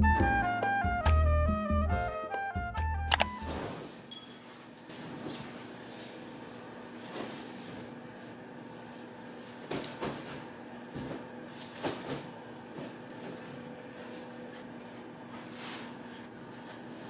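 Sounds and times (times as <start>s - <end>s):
bedding rustling: 3.4s - 7.9s, 8.7s - 17.0s.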